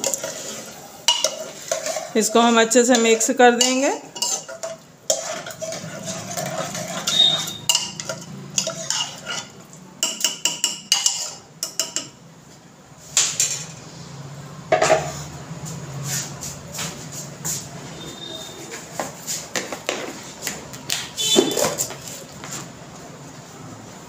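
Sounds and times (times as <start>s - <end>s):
ladle scraping and clinking a pot: 0.0s - 12.2s.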